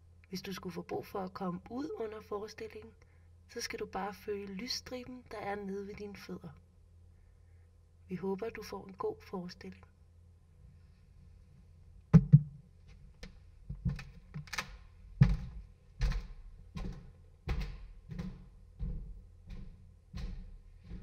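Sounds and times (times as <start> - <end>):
dull thumps and knocks: 12.1 - 12.6, 13.7 - 14.5, 15.2 - 21.0.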